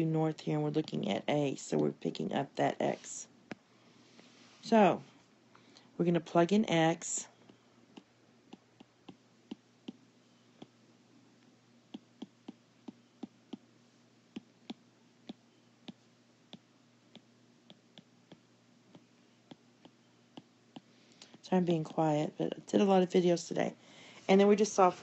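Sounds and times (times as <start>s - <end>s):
faint room hiss: 0.0s - 25.0s
stylus tapping tablet screen: 7.4s - 10.0s, 10.6s - 10.8s, 11.9s - 13.7s, 14.3s - 22.1s.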